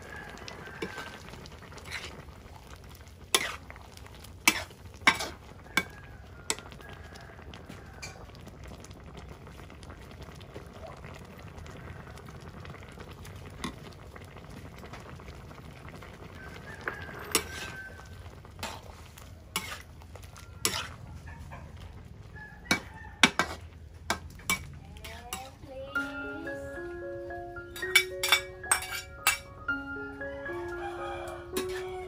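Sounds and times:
soup simmering: 0.0 - 25.5, 26.3 - 32.0
metal ladle scraping wok: 1.8 - 2.2, 3.3 - 3.7, 4.4 - 5.9, 18.6 - 20.0, 20.6 - 21.0, 23.2 - 23.7, 27.9 - 29.5, 31.6 - 32.0.

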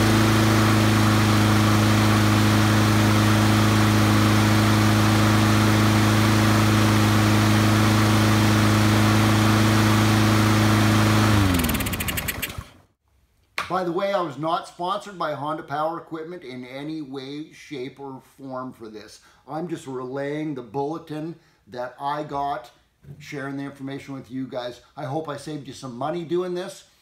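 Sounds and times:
lawn mower engine running: 0.0 - 12.8.

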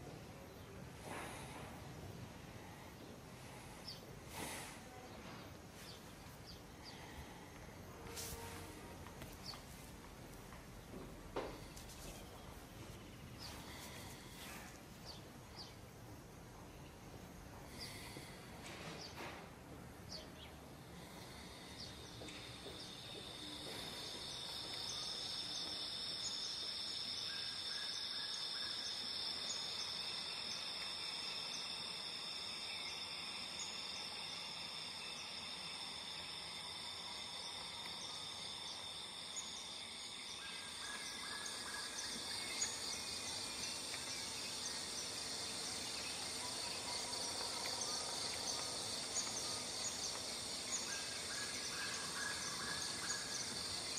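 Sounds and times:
insects trilling: 0.6 - 19.3, 20.1 - 53.9
faint bird chirps: 20.0 - 53.9.

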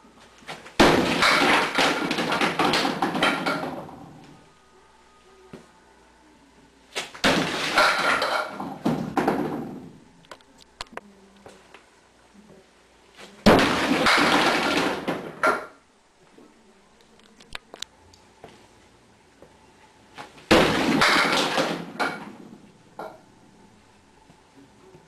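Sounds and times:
bowling pins crashing: 0.7 - 4.4, 7.0 - 10.0, 13.4 - 15.8, 20.4 - 23.3
pins falling and settling clicks: 0.8 - 4.4, 7.2 - 10.4, 13.5 - 15.8, 20.5 - 23.2.

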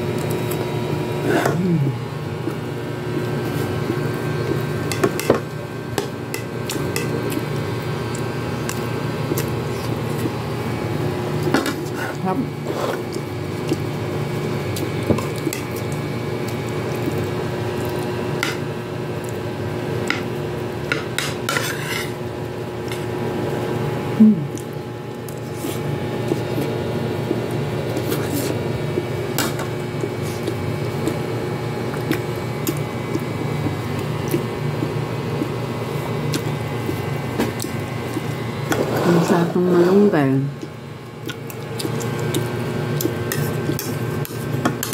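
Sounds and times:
steady background hum: 0.0 - 44.9
metal spoon scraping a plate: 21.5 - 22.2.

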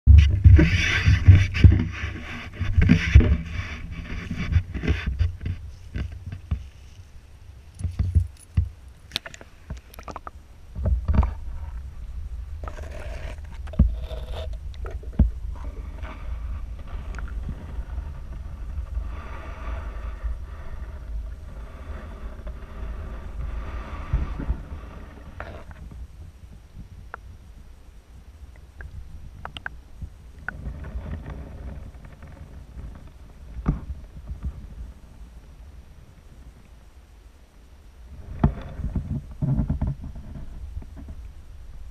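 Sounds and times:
dull underwater thuds: 0.1 - 6.7
muffled underwater rumble: 0.1 - 41.9
knocks and scrapes on camera housing: 0.2 - 6.7.

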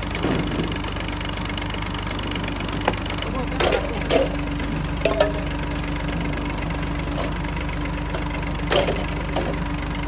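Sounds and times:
tractor diesel engine running: 0.0 - 10.0.

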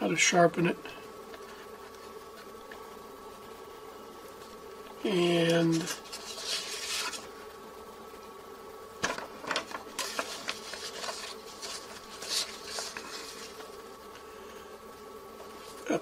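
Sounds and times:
faint background hum: 0.0 - 16.0
paper rustling and crackling: 5.3 - 7.3, 9.0 - 14.3, 15.4 - 15.9.

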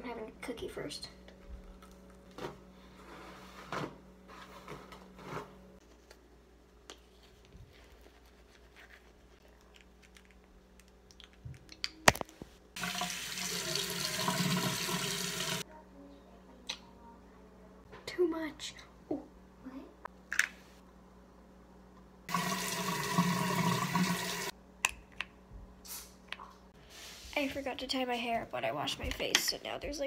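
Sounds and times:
sink tap running: 12.8 - 15.6, 22.3 - 24.5
faint brushing strokes: 26.8 - 27.8.

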